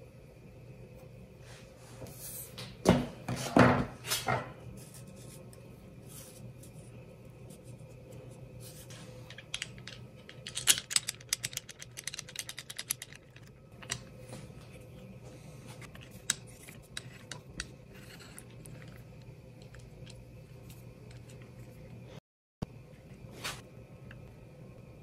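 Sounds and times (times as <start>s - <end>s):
small clicks and scrapes: 7.5s - 14.8s, 15.8s - 22.0s.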